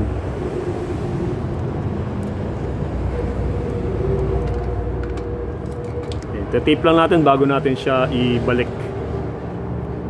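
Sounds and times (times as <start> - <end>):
low background rumble: 0.0 - 7.3.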